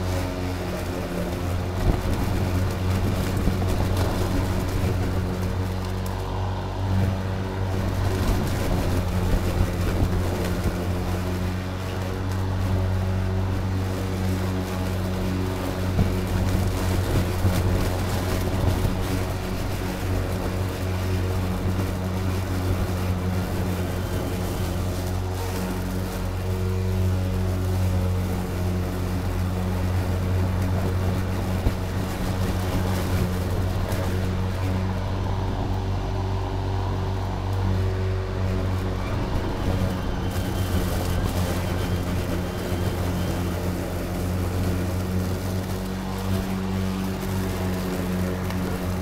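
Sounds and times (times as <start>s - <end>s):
lawn mower motor hum: 0.0s - 49.0s
mower blade cutting grass: 0.0s - 49.0s.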